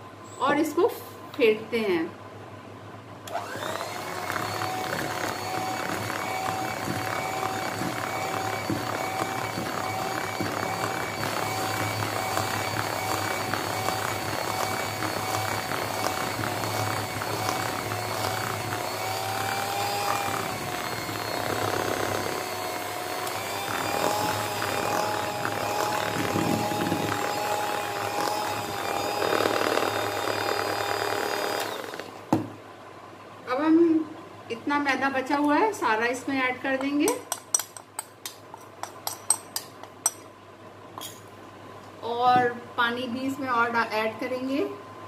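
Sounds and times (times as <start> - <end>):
electric hand mixer whirring: 3.3 - 32.3.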